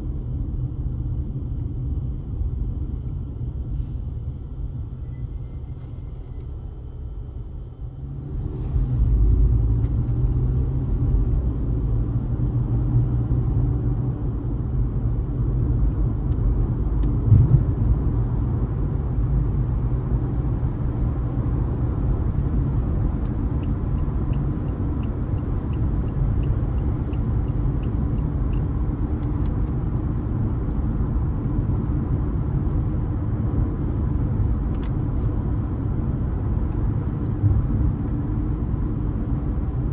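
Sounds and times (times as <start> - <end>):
car engine and tyres rumbling: 0.0 - 39.9
brief thump: 17.3 - 17.7.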